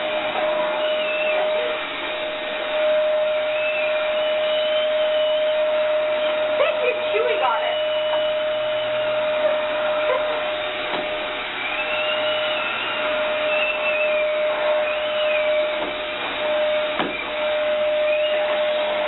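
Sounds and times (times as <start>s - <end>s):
vacuum cleaner running: 0.0s - 19.0s
knocks: 17.0s - 17.2s.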